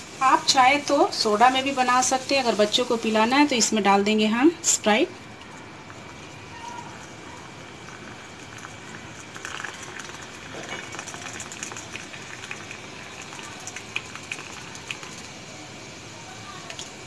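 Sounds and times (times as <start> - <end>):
soda fizzing and popping: 0.0 - 17.0
soda pouring over ice: 4.7 - 17.0.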